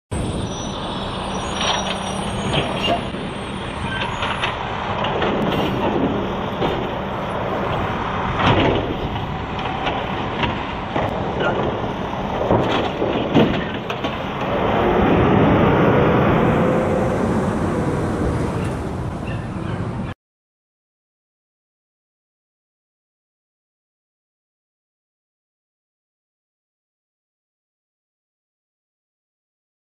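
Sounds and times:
hydraulic arm lifting cart: 0.2s - 15.3s
truck engine running: 0.2s - 19.8s
clunks and bangs of trash cart: 3.9s - 14.5s.

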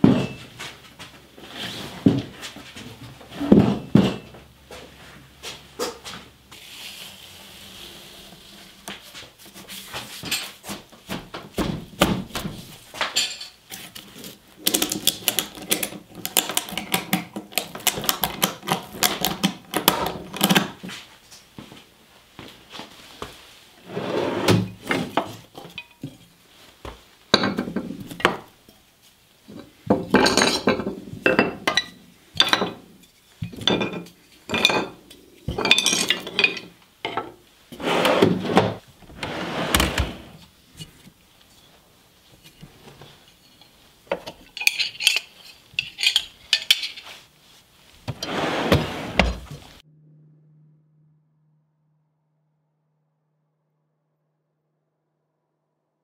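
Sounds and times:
steel tools clinking: 13.1s - 13.8s, 35.6s - 36.8s, 43.4s - 47.1s
wooden drawer sliding: 23.8s - 25.1s, 37.8s - 40.4s, 48.1s - 49.7s.

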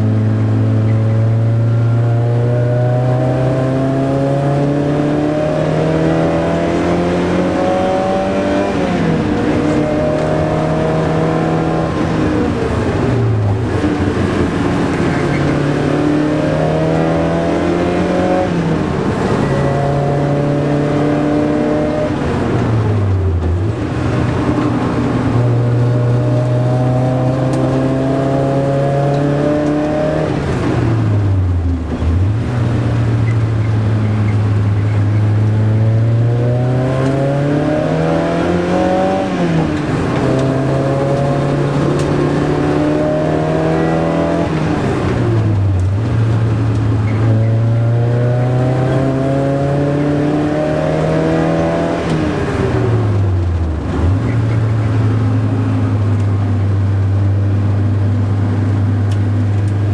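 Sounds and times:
car engine racing under load: 0.0s - 59.9s.

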